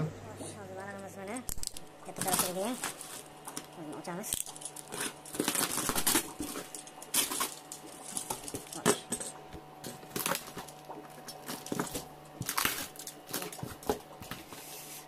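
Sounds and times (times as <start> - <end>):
plastic wrap crinkling: 1.3 - 15.0
cardboard rustling: 2.1 - 3.7, 4.6 - 9.2.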